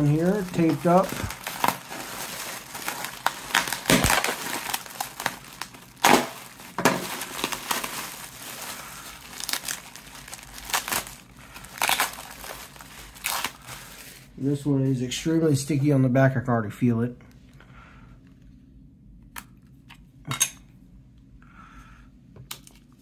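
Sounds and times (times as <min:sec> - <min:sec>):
plastic wrapping crinkling: 0:00.0 - 0:14.3.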